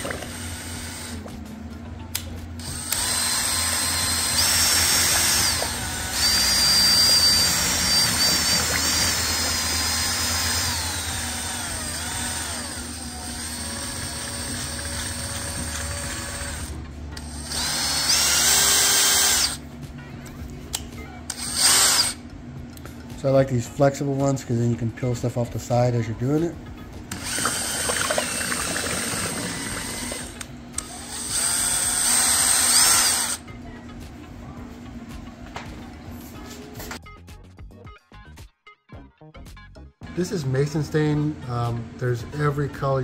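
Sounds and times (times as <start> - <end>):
electric drill motor whine: 0.0 - 1.4, 2.6 - 19.6, 21.3 - 22.2, 27.1 - 33.5
paddle mixer stirring slurry: 4.0 - 12.0, 27.2 - 30.4.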